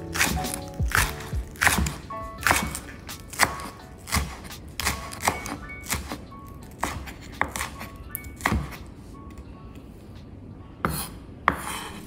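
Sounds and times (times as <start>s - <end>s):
knife chopping on cutting board: 0.0s - 8.8s, 10.9s - 12.0s
background music: 0.0s - 10.2s.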